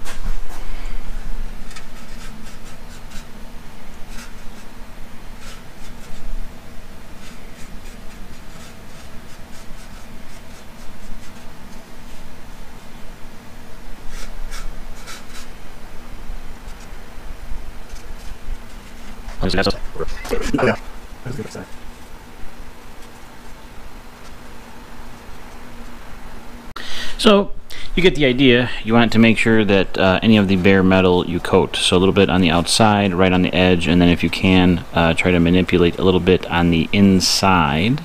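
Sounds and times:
brush scratching on sheet metal: 0.0 - 15.7, 16.5 - 19.8, 21.3 - 25.9.

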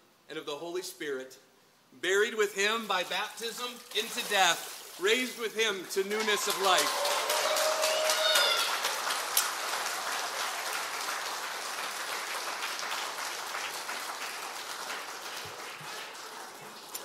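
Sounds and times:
congregation applauding: 6.1 - 17.0.

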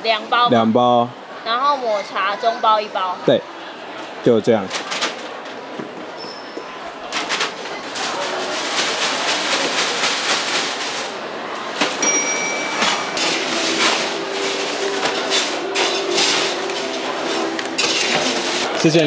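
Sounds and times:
clatter and handling noise: 4.7 - 6.1, 7.0 - 19.0.

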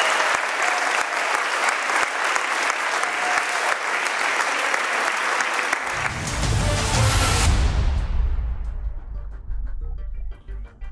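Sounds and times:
audience applauding: 0.0 - 7.4
music with deep bass: 6.0 - 10.9.

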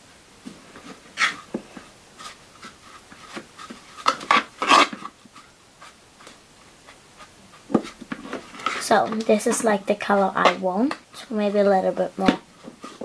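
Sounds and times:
dry scratching and rustling fibres: 0.7 - 10.3.

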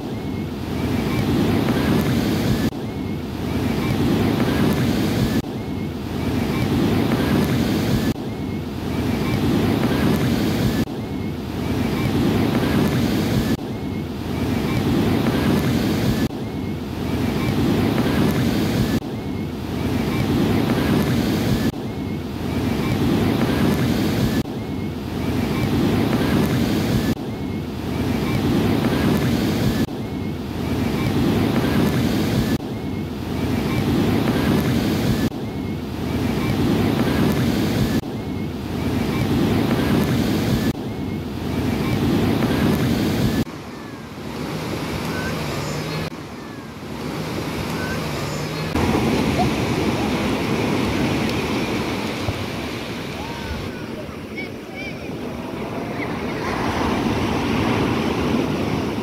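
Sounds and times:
heavy surf breaking: 0.0 - 59.0
wind on microphone: 0.0 - 59.0.

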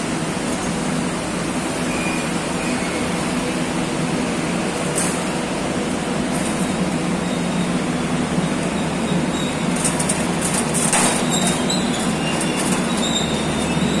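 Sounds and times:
train wheels rumbling on rail: 0.0 - 14.0
wheels squealing against rail: 1.7 - 3.5, 6.6 - 14.0.

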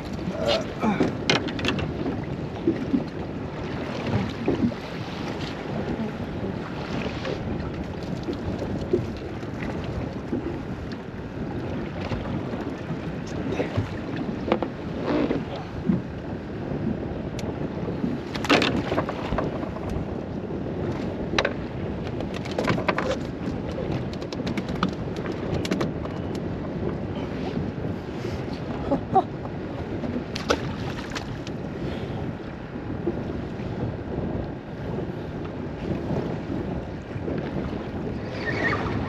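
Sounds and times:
water slapping boat hull: 0.0 - 39.0
wind buffeting microphone: 0.0 - 39.0
sharp knocks and clicks: 24.0 - 26.3.

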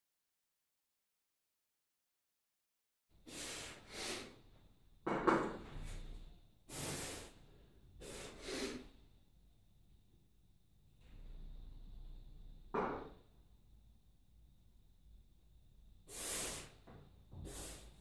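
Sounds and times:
man breathing heavily: 3.2 - 4.5, 6.7 - 8.9.

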